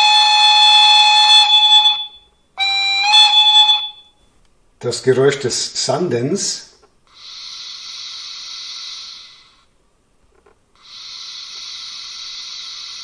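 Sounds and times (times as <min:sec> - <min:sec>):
hiss of air-blown sand: 0:10.8 - 0:13.0.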